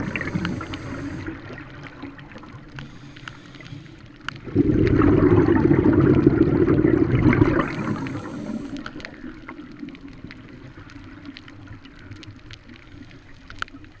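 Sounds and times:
faint clicks: 0.0s - 4.4s, 7.4s - 14.0s
low underwater hush: 0.0s - 14.0s
regulator bubbles gurgling: 0.0s - 14.0s.

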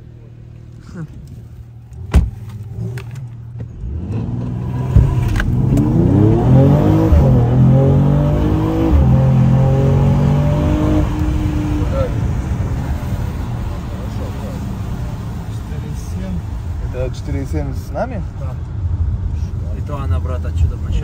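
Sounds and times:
car engine accelerating hard: 2.6s - 17.0s.

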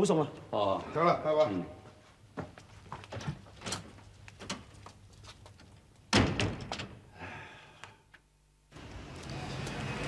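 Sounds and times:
door closing thump: 6.1s - 6.9s.

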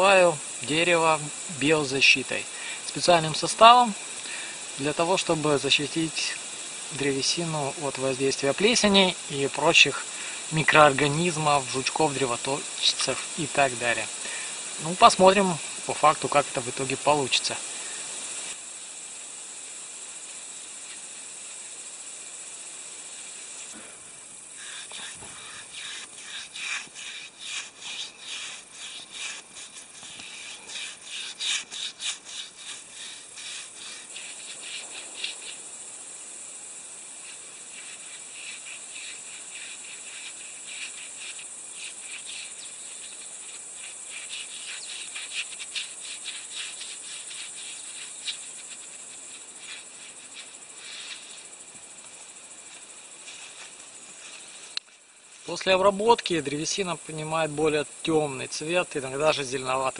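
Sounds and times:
steady high hiss: 0.0s - 59.9s
paintbrush scrubbing wood: 4.7s - 18.6s, 24.5s - 54.7s.

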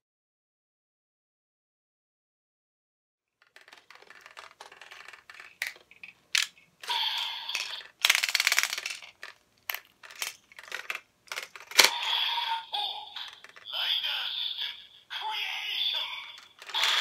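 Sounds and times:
plastic toy clicking and rattling: 3.4s - 13.8s, 16.0s - 17.0s.

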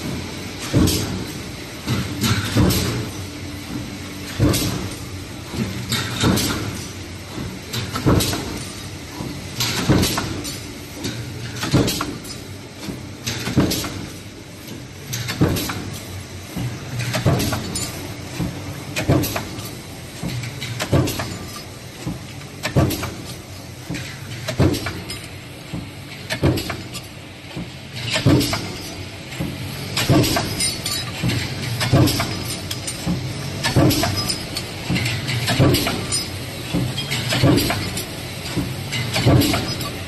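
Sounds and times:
power press clanking: 30.0s - 40.0s.

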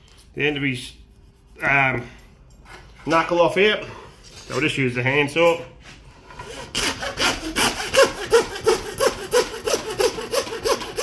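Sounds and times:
handsaw rasping through bone: 6.4s - 11.0s.

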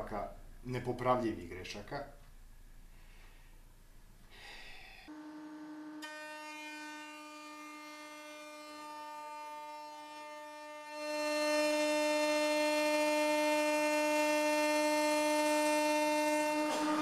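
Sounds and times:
router spindle whine: 5.1s - 17.0s.

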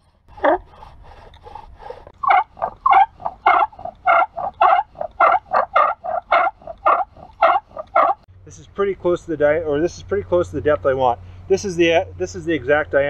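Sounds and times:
bow drill squeaking: 0.0s - 8.2s.

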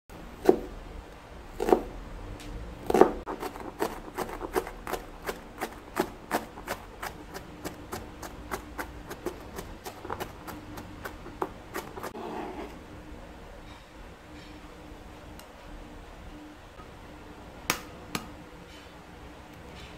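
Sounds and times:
knife chopping on plastic board: 0.4s - 0.7s, 1.6s - 1.9s, 2.8s - 12.1s.

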